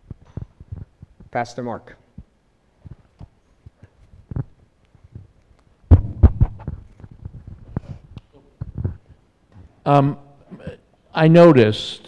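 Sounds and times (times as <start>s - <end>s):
microphone handling thumps and clicks: 0.0s - 1.4s, 2.1s - 9.8s.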